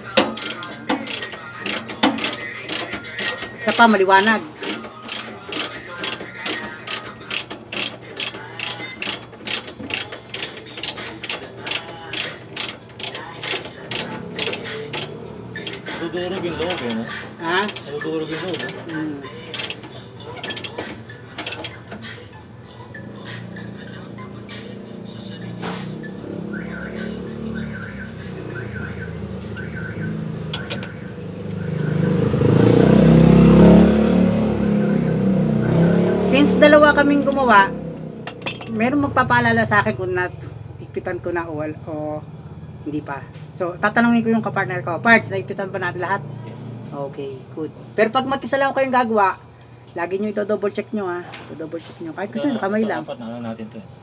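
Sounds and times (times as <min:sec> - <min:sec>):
ratchet wrench clicking: 0:00.0 - 0:20.8, 0:21.4 - 0:22.0, 0:30.4 - 0:31.0, 0:38.2 - 0:38.8
vehicle engine running: 0:00.0 - 0:47.4.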